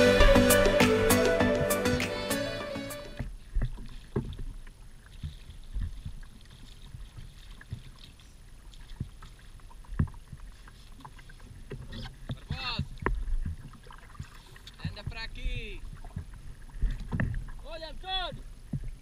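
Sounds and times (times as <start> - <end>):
background music: 0.0 - 3.2
fishing gear knocking on kayak hull: 12.3 - 17.5.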